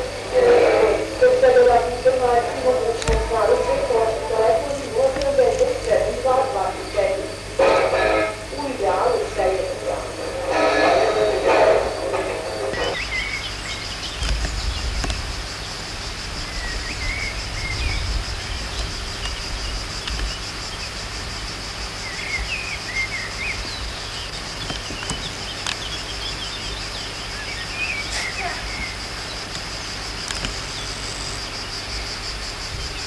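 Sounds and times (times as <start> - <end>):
high insect drone: 0.0 - 33.0
bird chirps: 12.6 - 15.0.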